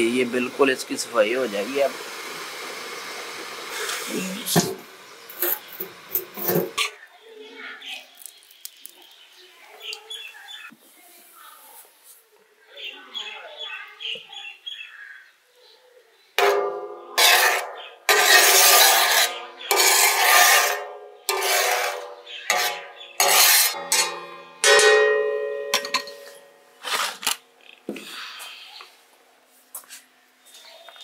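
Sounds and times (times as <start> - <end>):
metal spatula scraping steel griddle: 3.7 - 7.0, 16.4 - 27.3.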